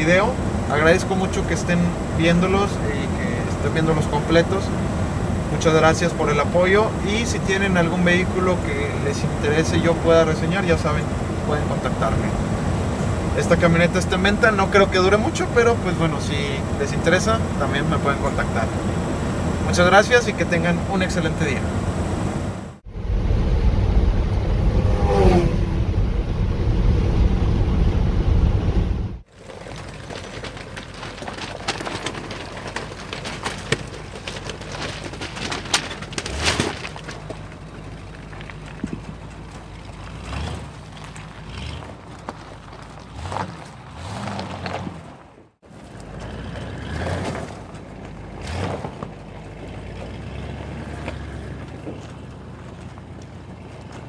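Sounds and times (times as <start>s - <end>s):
tyres rolling over gravel: 0.0s - 22.0s, 29.2s - 54.0s
truck engine and road rumble: 0.0s - 54.0s
crunches and knocks: 29.5s - 37.6s.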